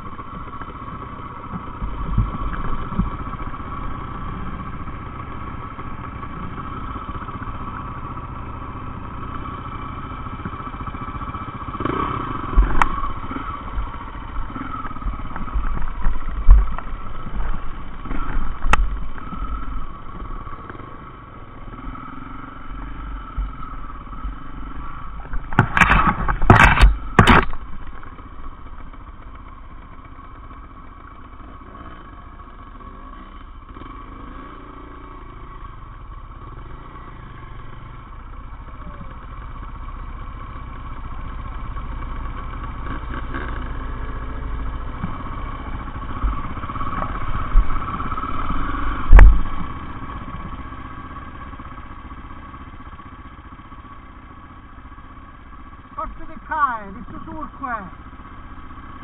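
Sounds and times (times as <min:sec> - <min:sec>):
dirt bike engines revving: 0:00.0 - 0:59.0
rattling and knocking: 0:25.2 - 0:28.0.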